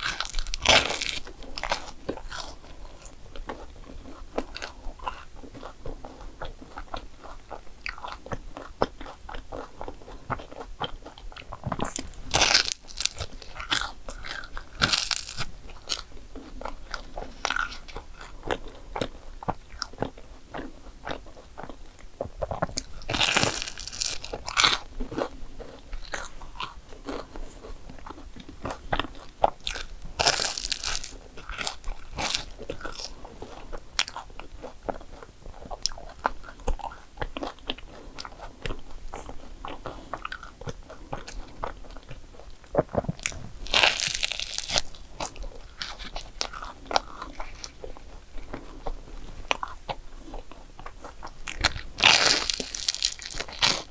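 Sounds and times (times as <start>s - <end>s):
chewing: 0.0s - 53.9s
crunching bites into waffle: 11.8s - 16.1s, 22.6s - 25.3s, 29.6s - 33.1s, 43.1s - 47.7s, 51.5s - 53.9s.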